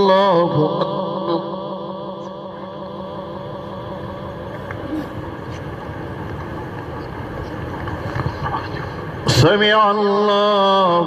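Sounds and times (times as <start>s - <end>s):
low rumble and hiss: 0.0s - 11.0s.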